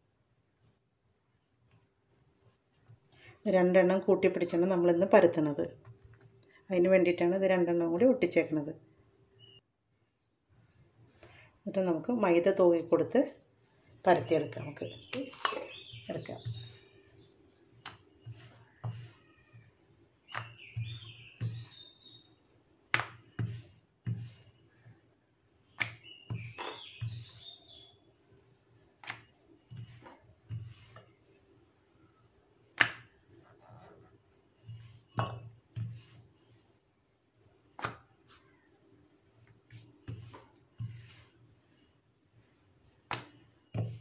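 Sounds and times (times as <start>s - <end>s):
bird chirping: 9.4s - 9.6s, 14.2s - 22.5s, 25.6s - 28.2s.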